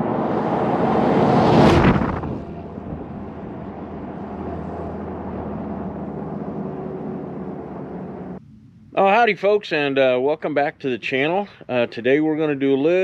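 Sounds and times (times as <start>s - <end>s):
vehicle passing close by: 0.0s - 8.4s
engine running steadily: 0.0s - 9.0s.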